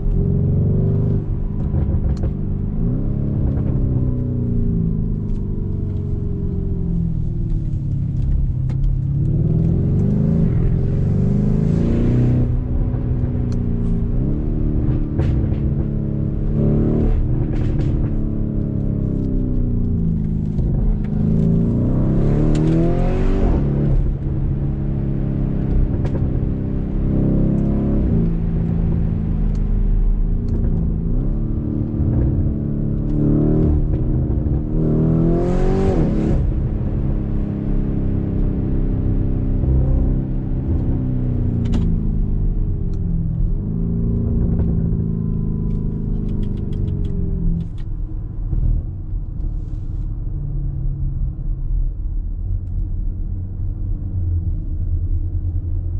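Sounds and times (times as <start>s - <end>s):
engine accelerating through gears: 0.0s - 50.1s.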